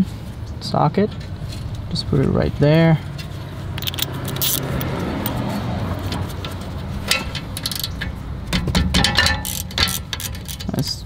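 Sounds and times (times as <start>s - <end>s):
ratchet clicking: 3.8s - 5.4s, 6.4s - 8.1s, 9.0s - 10.8s.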